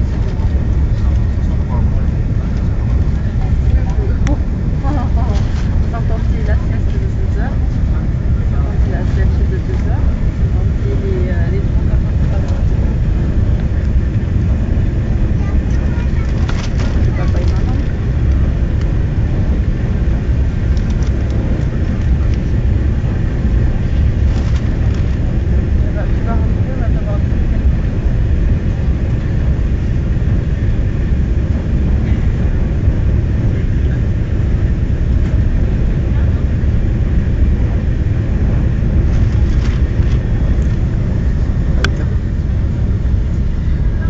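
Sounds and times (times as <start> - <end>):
train rumble inside passenger car: 0.0 - 44.0.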